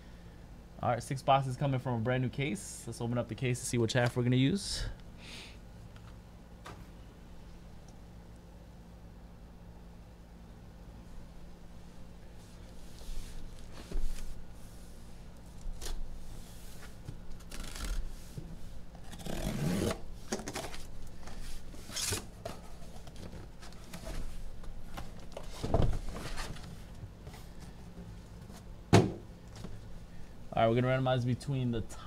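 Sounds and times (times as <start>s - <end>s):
cardboard rubbing and tearing: 17.4s - 18.2s, 19.0s - 20.9s.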